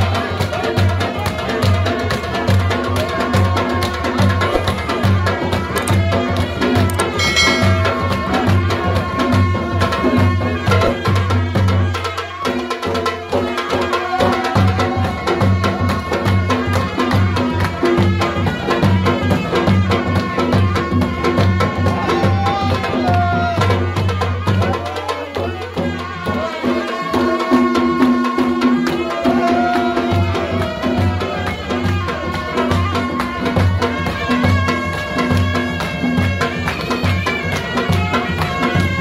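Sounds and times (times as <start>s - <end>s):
drums beating fast rhythm: 0.0s - 39.0s
gliding melody line: 6.9s - 8.5s.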